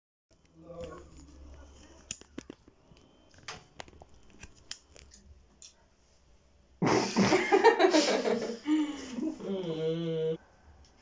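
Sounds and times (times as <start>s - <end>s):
burst of laughter: 6.8s - 9.4s.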